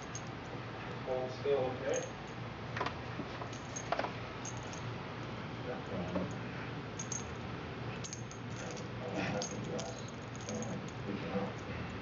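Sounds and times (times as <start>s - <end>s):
small collar bell jingling: 0.0s - 0.5s, 1.8s - 2.4s, 3.5s - 4.9s, 7.0s - 7.4s, 8.0s - 11.7s.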